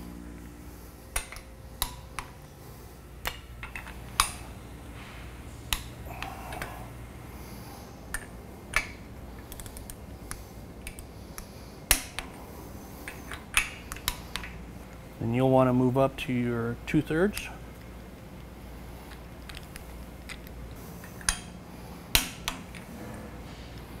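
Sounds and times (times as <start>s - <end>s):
steady low hum: 0.0s - 24.0s
ratcheting wrench clicks: 8.1s - 10.0s.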